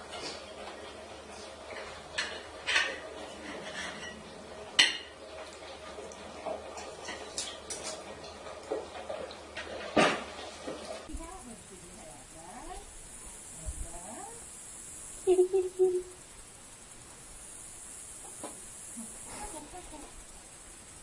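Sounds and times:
faint steady hum: 9.6s - 21.0s.

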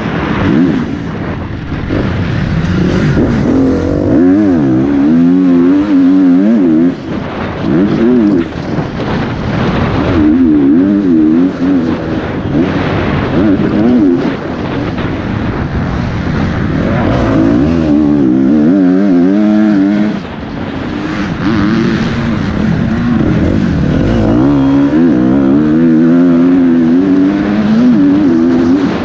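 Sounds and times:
wind rushing over microphone: 0.0s - 29.0s
motocross engine revving: 0.1s - 15.6s, 16.2s - 29.0s.

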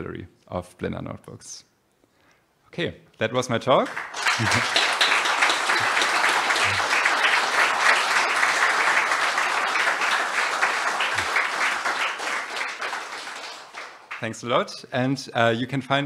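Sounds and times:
audience applauding: 3.8s - 14.6s.

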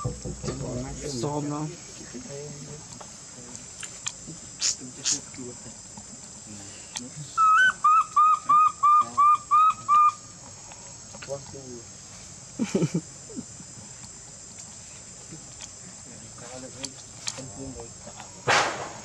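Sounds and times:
insects droning: 0.0s - 19.0s
whistle-like animal calls: 7.4s - 10.2s.

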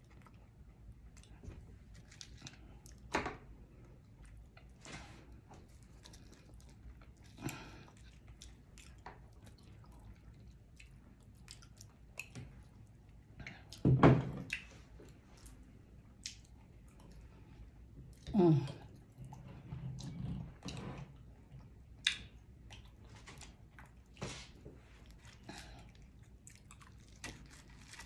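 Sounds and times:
chewing fried fish: 0.0s - 3.1s, 3.8s - 28.0s.

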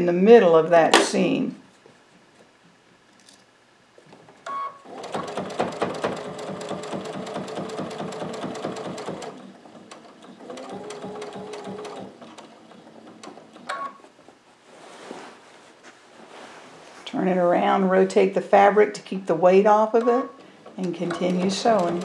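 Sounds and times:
sewing machine stitching: 4.8s - 13.8s, 20.6s - 22.0s.

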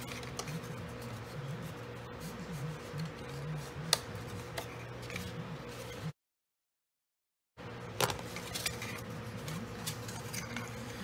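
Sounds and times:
steady low hum: 0.0s - 6.2s.

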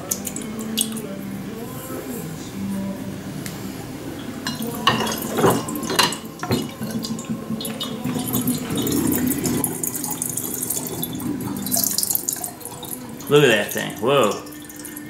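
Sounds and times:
water swirling and gurgling: 3.2s - 15.0s
glass clinking and knocking: 4.4s - 15.0s.

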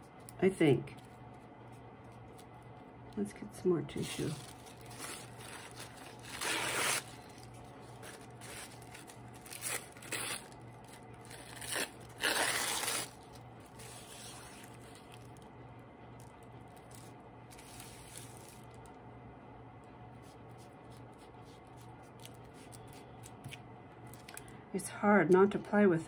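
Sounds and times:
paper rustling: 4.0s - 15.4s
tissue paper ripping: 4.0s - 15.4s, 17.0s - 18.6s.

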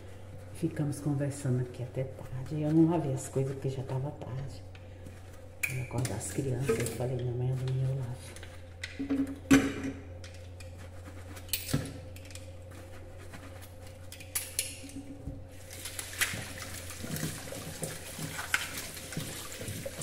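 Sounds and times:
tap water running into sink: 15.6s - 20.0s.

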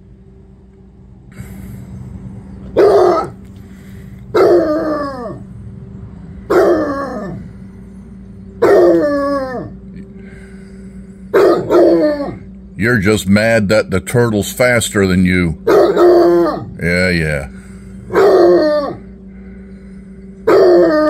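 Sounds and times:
dog baying: 2.8s - 3.4s, 4.3s - 5.4s, 6.5s - 7.4s, 8.6s - 9.8s, 11.3s - 12.5s, 15.6s - 16.8s, 18.1s - 19.1s, 20.4s - 21.0s.

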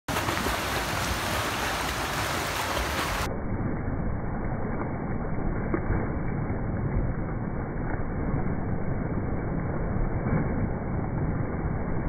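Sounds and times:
water splashing from kicking feet: 0.1s - 3.3s.

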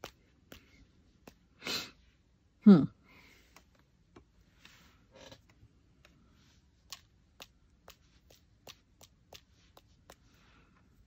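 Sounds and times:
paintbrush tapping: 0.0s - 1.6s, 5.9s - 11.0s.

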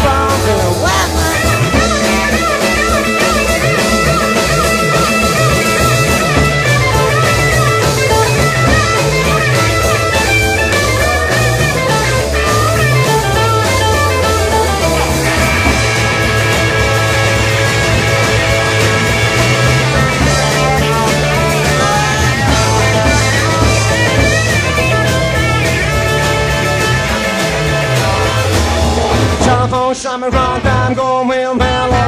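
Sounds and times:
electric guitar lead: 0.0s - 29.8s
bass and drums: 0.0s - 32.0s.

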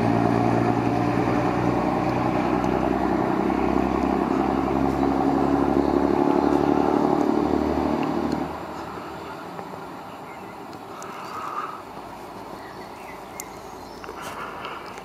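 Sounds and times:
train engine running hard: 0.0s - 9.5s.

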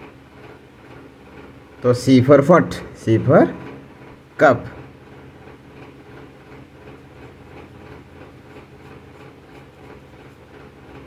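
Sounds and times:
pencil scratching on paper: 6.9s - 11.0s.

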